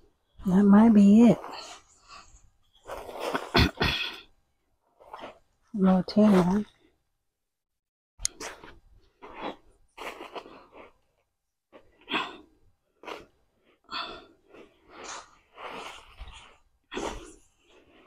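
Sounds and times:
garden fork scraping soil: 2.8s - 3.6s.

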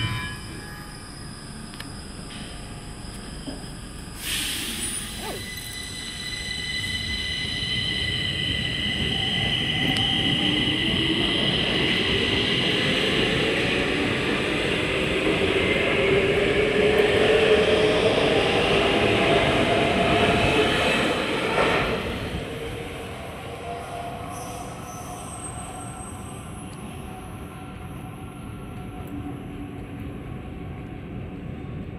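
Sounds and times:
train motor whine: 0.4s - 10.2s.

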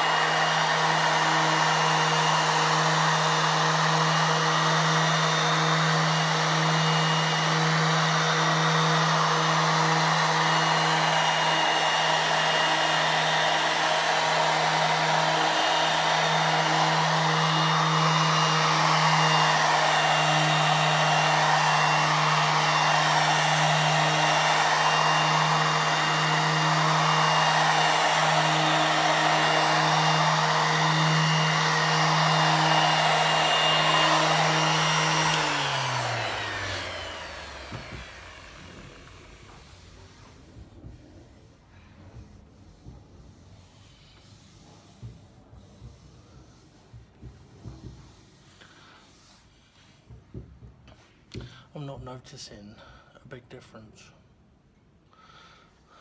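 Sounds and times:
orbital sander motor hum: 0.0s - 41.4s
sanding pad hiss on wood: 0.0s - 50.1s.

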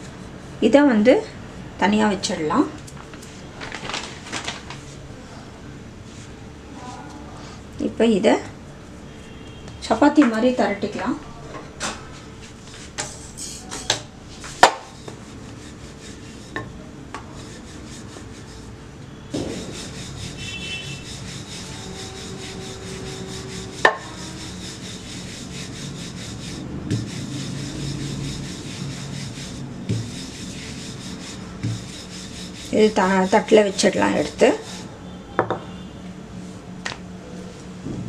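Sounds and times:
rolling pin rubbing on dough: 12.4s - 34.9s
rolling pin knocks: 29.9s - 30.2s.

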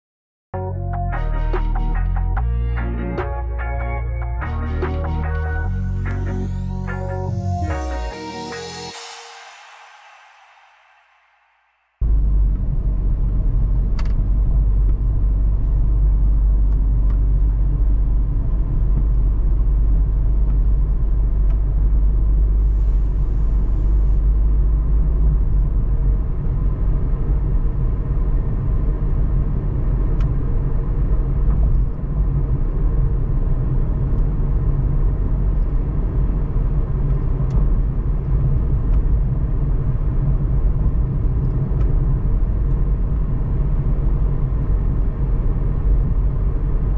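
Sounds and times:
car driving on street: 12.0s - 46.9s.

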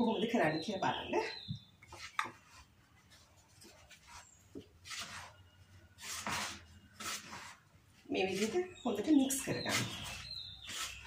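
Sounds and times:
spoon scraping in plastic bowl: 8.2s - 11.0s.

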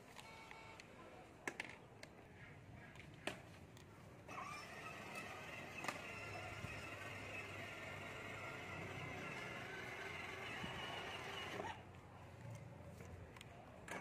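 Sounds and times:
toy car electric whir on concrete: 4.2s - 12.0s.

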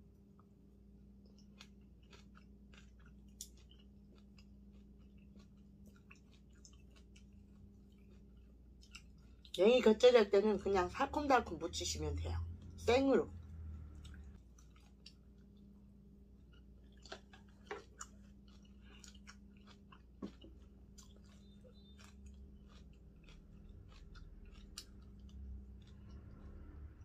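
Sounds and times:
low steady hum: 0.0s - 27.0s
person chewing greens: 0.1s - 10.9s, 12.4s - 27.0s.

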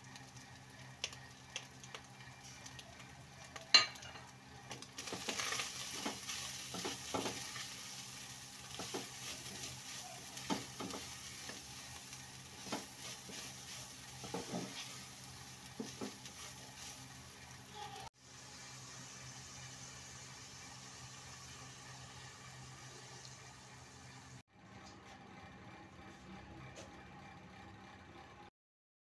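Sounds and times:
meat sizzling in a pan: 0.0s - 24.4s
spatula scraping a pan: 8.7s - 17.2s.

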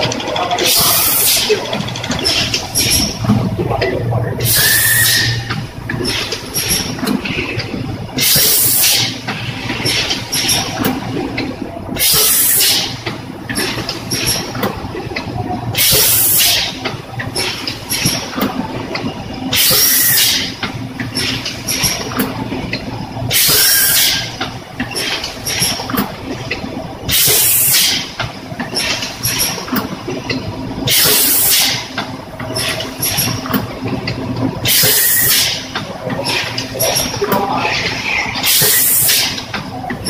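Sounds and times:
steady low hum: 0.0s - 12.3s
mechanical clicking and clattering: 0.0s - 40.0s.

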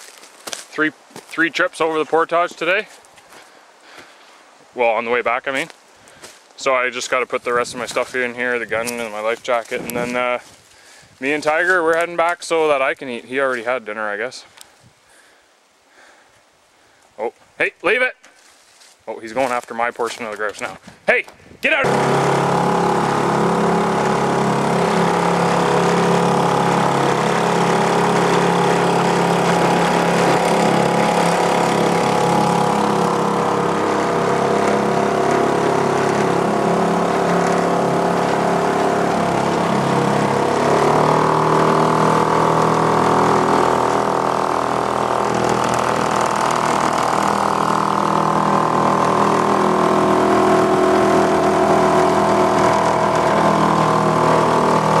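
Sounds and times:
small outboard motor running: 21.8s - 55.0s.

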